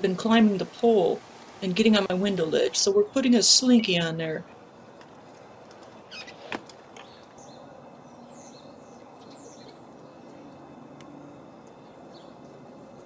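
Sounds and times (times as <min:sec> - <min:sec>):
small birds chirping: 0:05.8 - 0:13.0.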